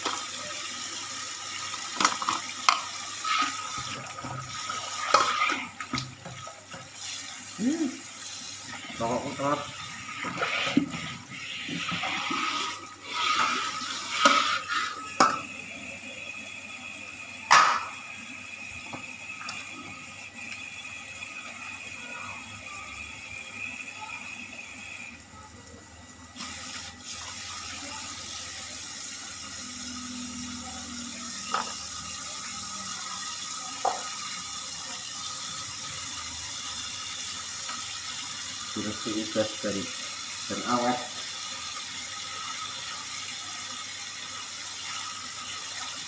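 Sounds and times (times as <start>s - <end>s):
tap running into a sink: 17.4s - 18.0s, 18.8s - 20.7s, 31.4s - 31.8s, 33.8s - 34.3s.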